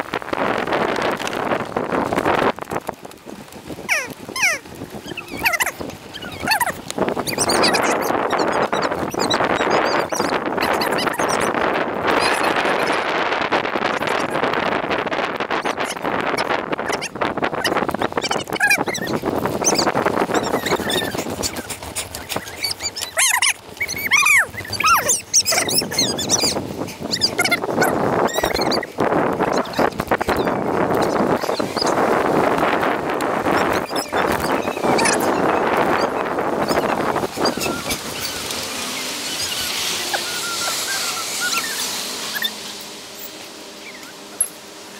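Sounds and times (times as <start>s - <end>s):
wind and road noise: 0.0s - 44.9s
short high squeaky chirps: 3.9s - 11.5s, 22.3s - 28.9s, 39.3s - 42.6s
sped-up rushing noise: 23.8s - 44.9s.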